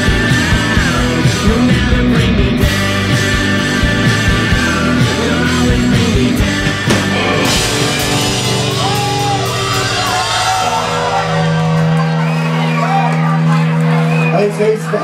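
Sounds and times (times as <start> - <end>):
people singing and shouting: 0.0 - 13.0
electric guitars: 0.0 - 14.3
drums: 0.0 - 14.6
cymbal crash: 6.7 - 11.2.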